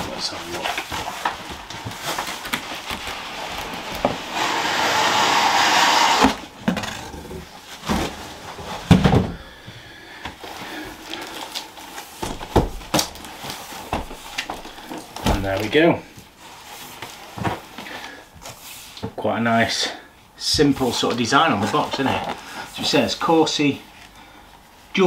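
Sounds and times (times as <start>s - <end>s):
cardboard sliding against cardboard: 0.1s - 9.0s
boxes thumping on countertop: 8.8s - 9.4s, 12.2s - 13.1s.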